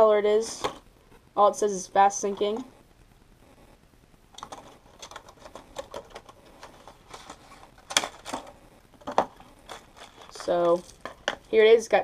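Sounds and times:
plastic packaging crackling: 4.3s - 11.7s.

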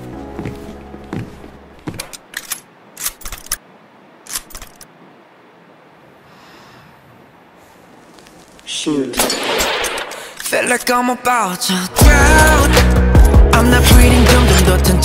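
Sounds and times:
faint hiss: 5.0s - 9.2s.

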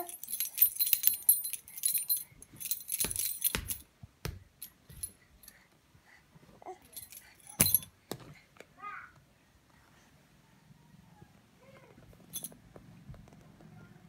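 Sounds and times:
keys jingling on a ring: 0.0s - 3.9s, 6.9s - 7.9s, 12.3s - 12.6s.

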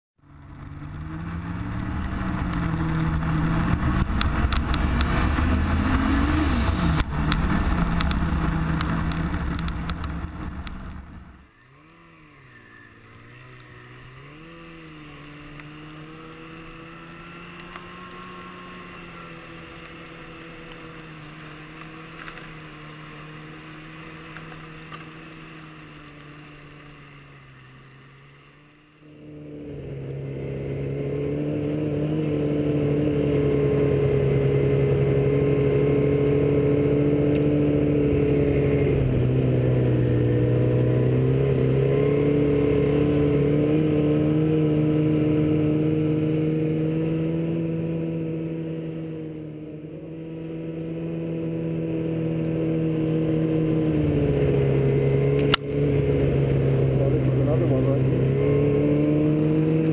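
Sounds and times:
snowmobile engine revving: 0.4s - 59.9s
rushing noise: 0.8s - 11.4s.

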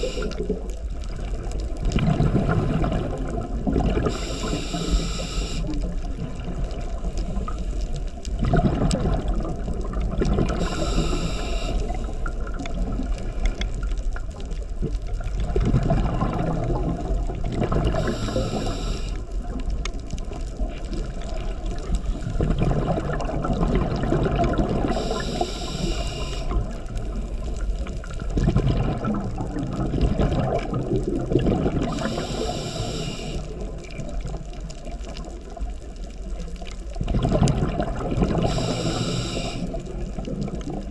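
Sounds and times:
regulator breath hiss: 0.0s - 0.5s, 4.1s - 5.8s, 10.6s - 12.3s, 18.0s - 19.2s, 24.9s - 26.6s, 31.9s - 33.6s, 38.4s - 39.8s
gurgling exhaled bubbles: 0.0s - 40.9s.

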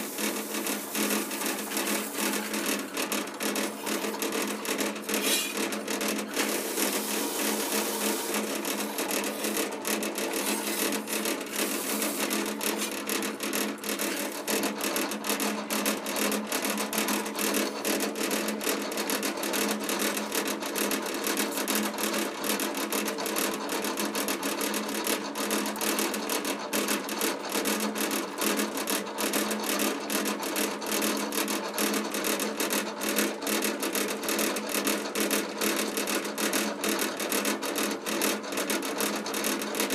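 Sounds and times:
razor blade scraping metal: 0.0s - 13.0s
metal rasping on sanding disc: 0.0s - 13.2s
drill press motor humming: 0.0s - 23.2s.

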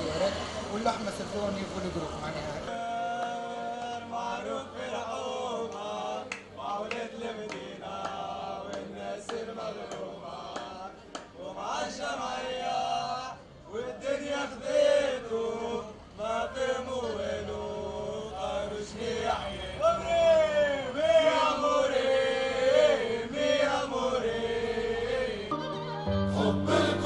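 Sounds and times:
men singing a chant: 2.7s - 25.5s, 26.2s - 27.0s
hand claps: 5.7s - 11.4s.

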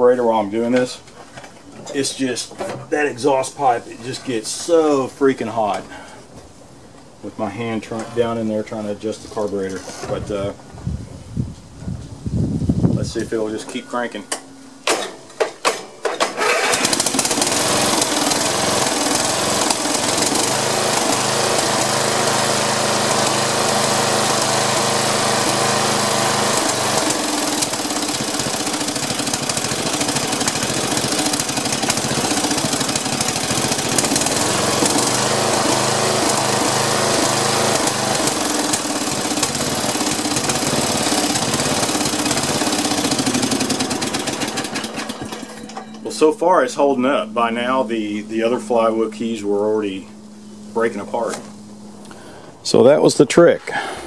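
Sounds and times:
lawn mower engine cranking: 13.6s - 47.7s
lawn mower engine running: 14.3s - 52.6s.

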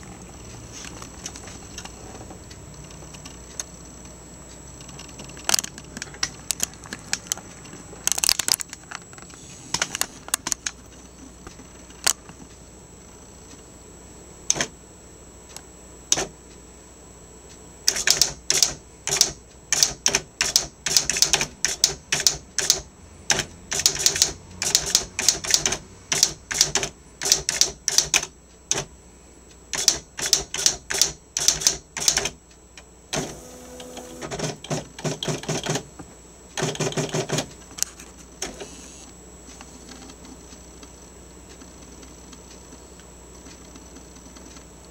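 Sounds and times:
typewriter clacking: 17.9s - 28.9s, 29.8s - 32.4s, 34.2s - 35.9s, 36.6s - 37.5s
motor whir: 33.2s - 34.4s, 38.4s - 39.1s.

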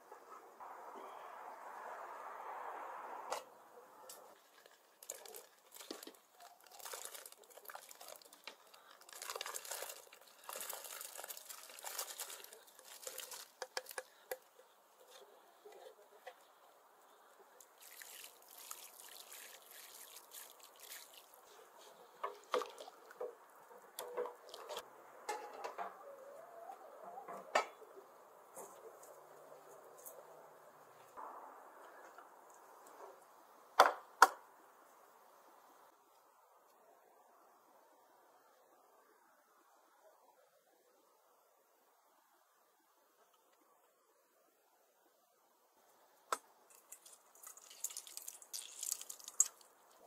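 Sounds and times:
food splashing into boiling water: 17.8s - 21.4s, 46.7s - 50.0s.

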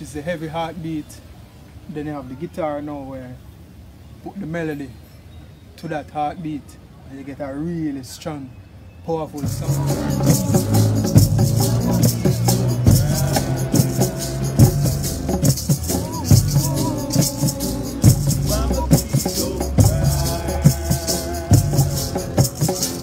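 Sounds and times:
high rattle keeping time: 9.4s - 23.0s
man singing: 9.4s - 23.0s
acoustic guitar melody: 9.5s - 23.0s
hand drums beating: 9.5s - 23.0s.

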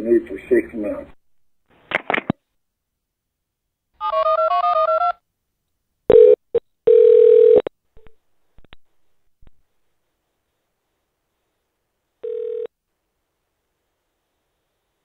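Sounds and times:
phone line tone: 6.1s - 7.7s, 12.2s - 12.7s.

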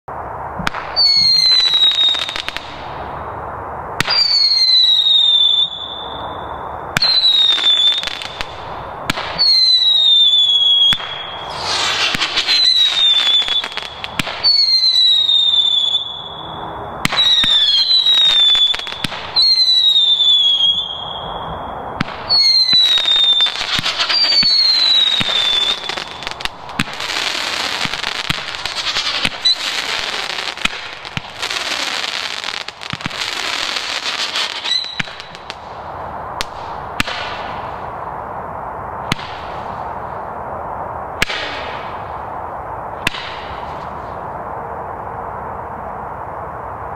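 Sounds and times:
firework crackling: 0.2s - 38.2s
falling firework whistle: 0.7s - 2.8s, 4.0s - 35.6s
firework shots banging: 7.0s - 9.6s, 10.8s - 15.0s, 22.0s - 35.6s, 36.4s - 37.6s, 41.2s - 42.0s, 43.0s - 43.7s.

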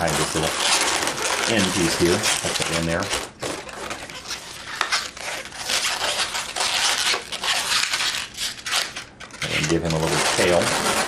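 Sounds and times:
balloons rustling and rubbing: 0.0s - 11.0s.

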